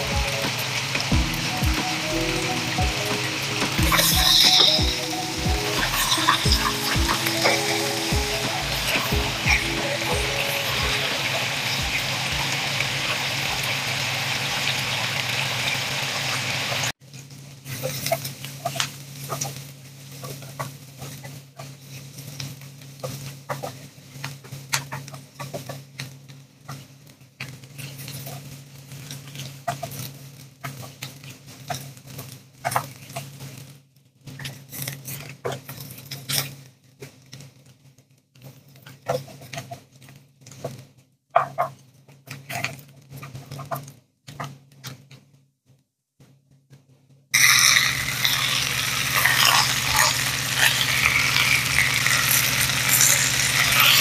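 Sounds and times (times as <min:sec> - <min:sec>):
food sizzling in a pan: 0:00.0 - 0:17.0, 0:47.4 - 0:54.0
low hum: 0:47.4 - 0:54.0.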